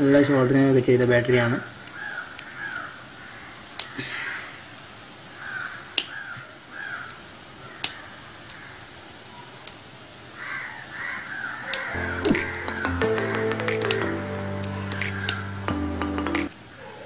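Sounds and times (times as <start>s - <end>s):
crows cawing: 1.6s - 4.7s, 5.3s - 8.9s, 10.4s - 13.6s, 14.8s - 15.5s
sharp clicks of handled battery cells: 3.6s - 4.0s, 6.0s - 6.2s, 7.8s - 8.6s.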